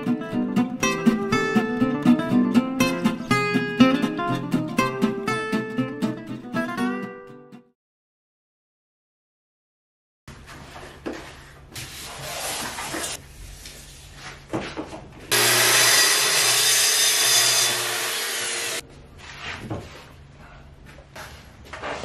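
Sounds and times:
power tool running: 15.3 - 18.8.

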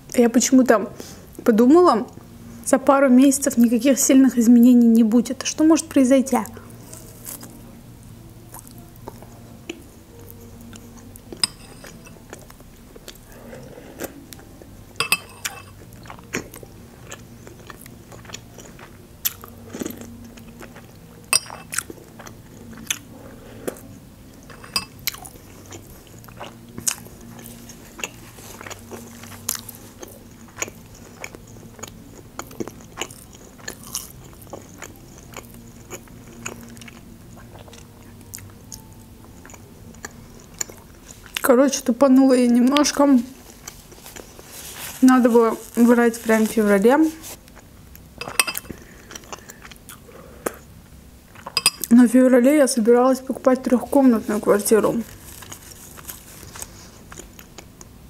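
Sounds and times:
chewing and biting food: 15.4 - 41.5, 42.7 - 50.7, 55.0 - 58.0.

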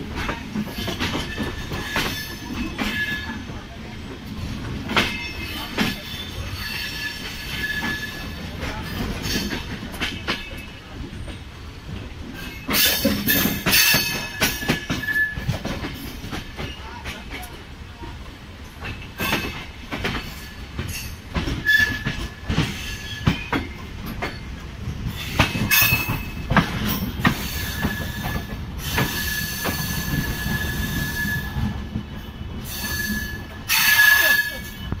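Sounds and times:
train wheels clacking over rail joints: 0.0 - 17.6, 18.6 - 35.0
high-pitched wheel squeal: 27.4 - 31.8, 32.7 - 35.0.

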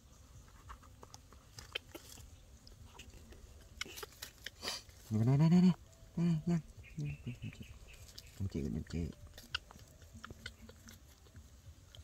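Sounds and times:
monkey smacking and chewing: 0.4 - 5.1, 6.8 - 12.0.

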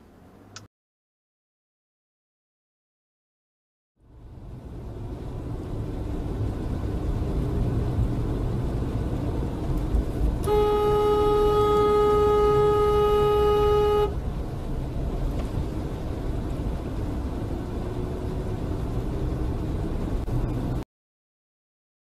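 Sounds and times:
road rumble of car driving: 0.0 - 0.7, 4.0 - 20.9
car horn blast: 10.4 - 14.2.

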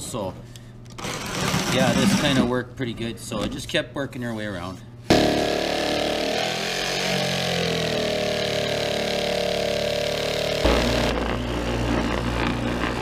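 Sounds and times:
jigsaw cutting wood: 1.0 - 2.5, 5.1 - 13.0
disc sander motor hum: 5.3 - 13.0.

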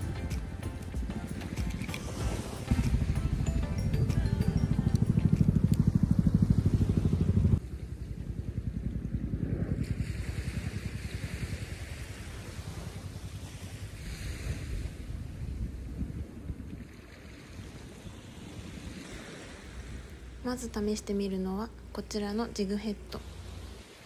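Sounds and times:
wind rumbling on microphone: 0.0 - 24.0.

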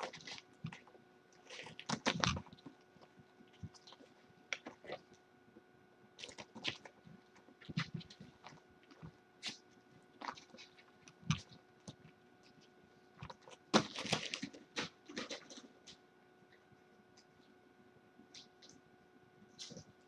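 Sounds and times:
kittens knocking and scratching: 13.2 - 15.9.

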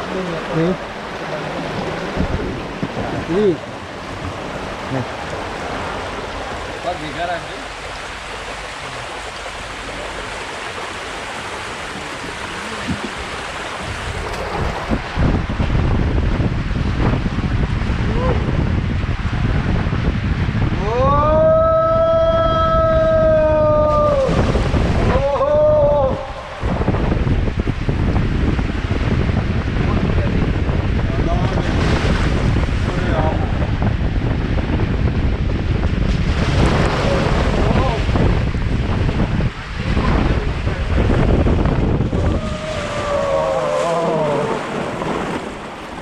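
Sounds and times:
wind noise on microphone: 0.0 - 6.9, 7.6 - 46.0
water rushing: 0.0 - 46.0
long wavering cry: 42.2 - 44.7
rider yelling: 42.2 - 44.7.

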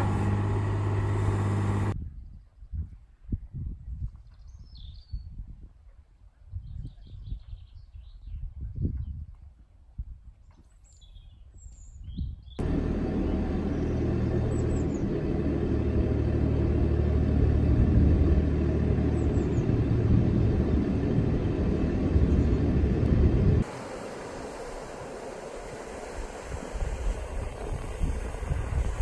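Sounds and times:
boat engine chugging: 0.0 - 2.0, 12.6 - 29.0.

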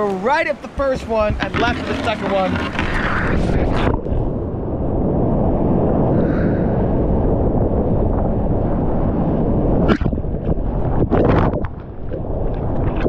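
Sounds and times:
whitewater rapid roaring: 0.0 - 4.0.

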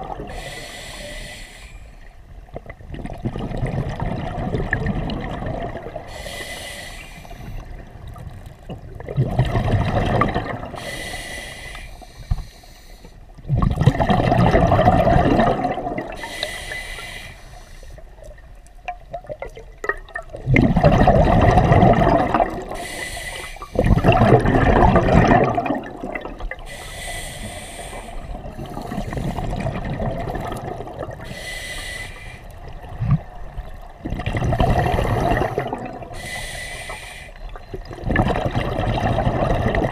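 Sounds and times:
regulator inhalation hiss: 0.3 - 2.1, 6.1 - 7.6, 10.8 - 13.2, 16.2 - 18.0, 22.8 - 23.9, 26.7 - 29.4, 31.2 - 32.5, 36.1 - 37.4
exhaust bubbles rushing: 2.9 - 6.0, 9.0 - 10.7, 13.5 - 16.2, 19.2 - 22.8, 23.8 - 26.6, 28.7 - 31.2, 34.0 - 36.1, 37.9 - 39.9.

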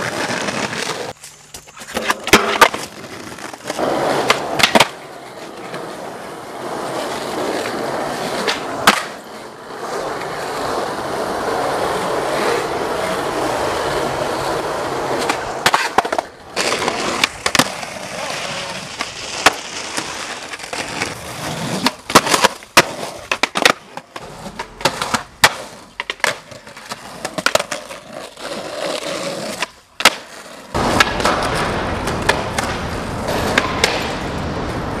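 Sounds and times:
skateboard wheels rolling on pavement: 0.0 - 35.0
skateboard clacks and bangs: 3.6 - 5.9, 8.4 - 9.2, 15.2 - 21.1, 21.8 - 27.9, 29.6 - 35.0.

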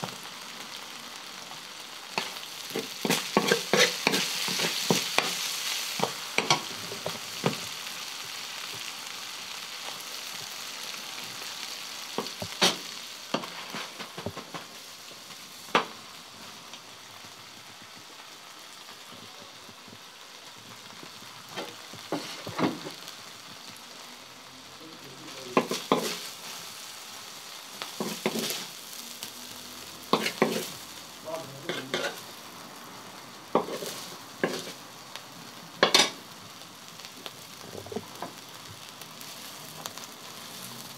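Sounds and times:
meat sizzling on griddle: 0.0 - 40.9
metal spatula scraping pan: 2.2 - 6.7, 31.7 - 32.2.

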